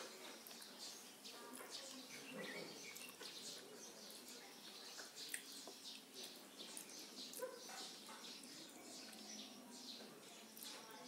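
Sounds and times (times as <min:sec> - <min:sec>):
faint bird chirping: 0:00.0 - 0:11.0
dog barking: 0:07.3 - 0:08.2.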